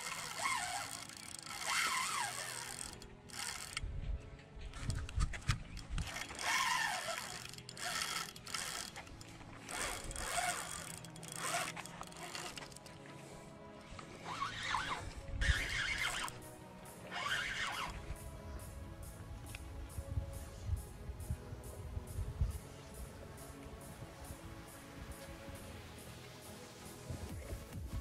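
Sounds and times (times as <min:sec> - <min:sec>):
fishing reel whirring and clicking: 0:00.0 - 0:03.9, 0:04.7 - 0:13.0, 0:14.2 - 0:16.5, 0:17.1 - 0:18.2
music playing: 0:00.0 - 0:28.0.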